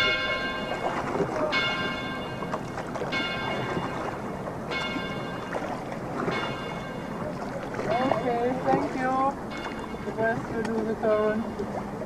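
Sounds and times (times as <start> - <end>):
bell tolling: 0.0 - 4.1, 6.2 - 7.3.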